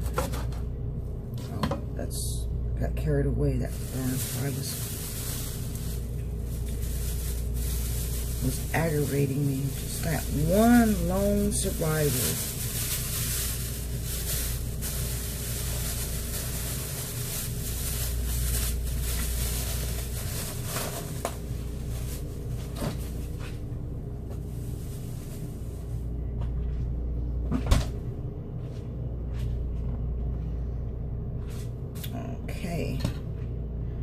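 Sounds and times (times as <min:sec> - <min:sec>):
steady low hum: 0:00.0 - 0:34.0
plastic bag rustling: 0:03.5 - 0:26.0.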